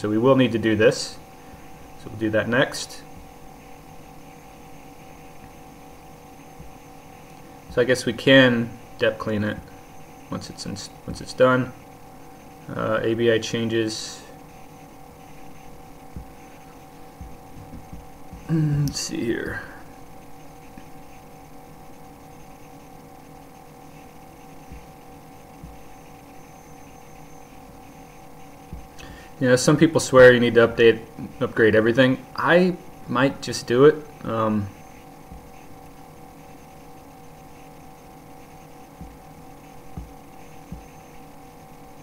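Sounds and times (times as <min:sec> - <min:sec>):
electrical hum: 0:00.0 - 0:42.0
faint thumps: 0:15.6 - 0:18.6, 0:24.6 - 0:26.0, 0:28.6 - 0:29.3, 0:38.9 - 0:41.2.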